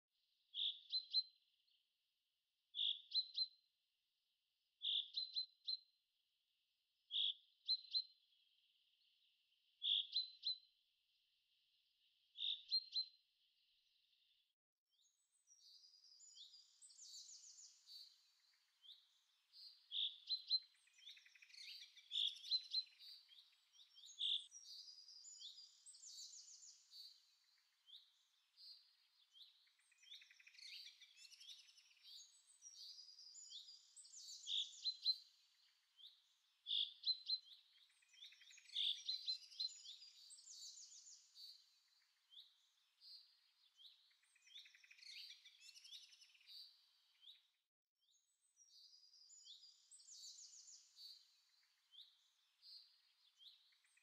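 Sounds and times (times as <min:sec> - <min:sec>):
birds chirping and trilling: 0:15.0 - 0:47.5, 0:48.2 - 0:54.0.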